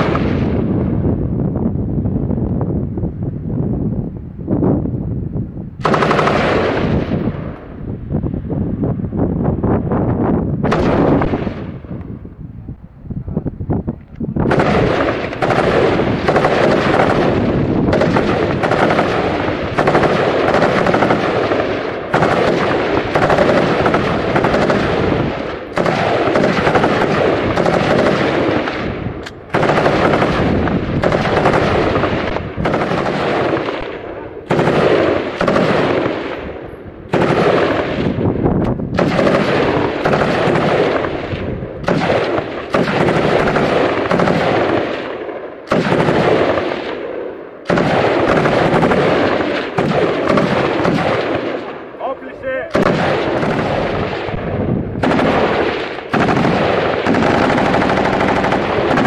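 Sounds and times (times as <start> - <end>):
machine gun automatic fire: 5.8 - 7.5, 10.6 - 11.8, 14.4 - 36.4, 37.1 - 38.2, 38.9 - 47.0, 47.6 - 51.8, 52.7 - 59.0.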